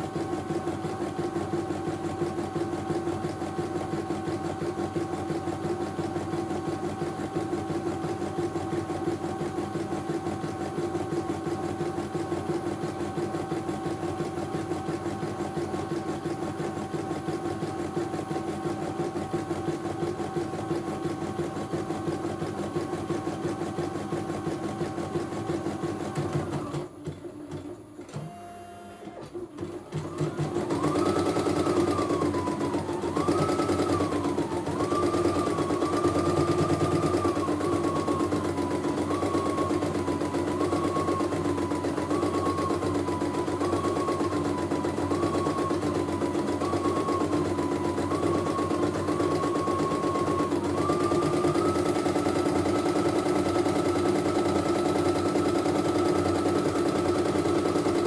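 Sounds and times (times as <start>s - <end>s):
embroidery machine stitching: 0.0s - 58.0s
brief motor tone: 27.6s - 29.4s.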